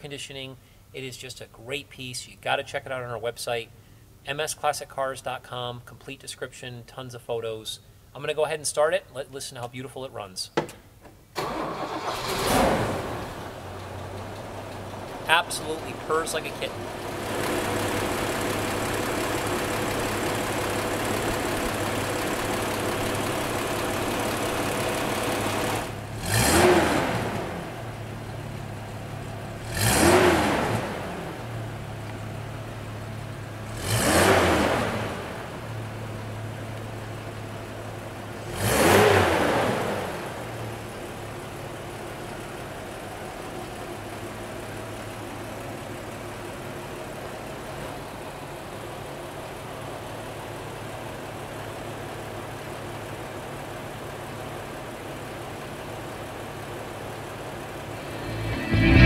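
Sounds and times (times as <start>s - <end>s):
engine idling and revving: 11.8s - 59.0s.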